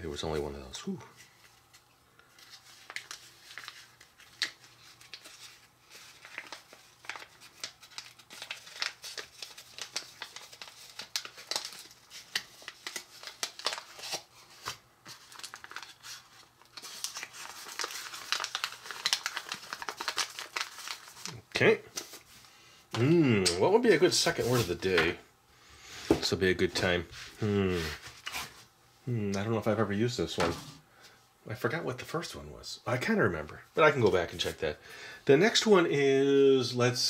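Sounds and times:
packet crinkling: 1.6s - 22.3s.

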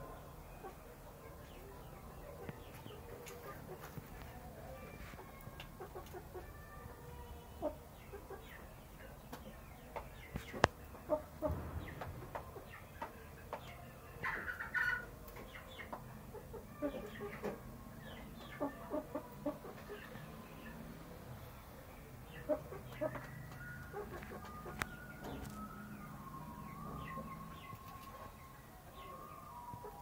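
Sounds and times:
chickens clucking softly: 0.0s - 21.0s, 21.8s - 25.5s
chickens pecking taps: 9.2s - 14.6s.

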